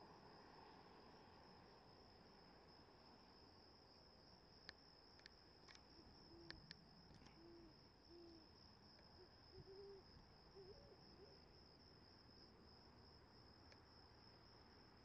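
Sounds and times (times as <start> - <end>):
cricket trill: 0.0 - 15.0
owl hooting: 7.4 - 8.4, 9.2 - 11.3.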